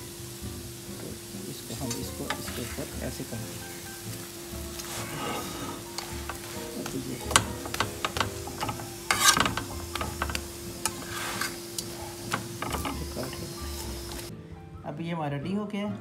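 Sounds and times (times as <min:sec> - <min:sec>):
flatbread sizzling on a griddle: 0:00.0 - 0:14.3
metal tongs clicking and scraping: 0:05.7 - 0:13.1.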